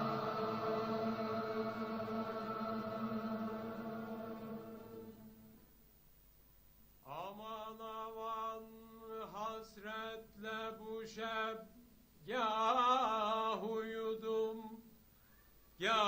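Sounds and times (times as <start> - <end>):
group of men singing: 0.0 - 5.1.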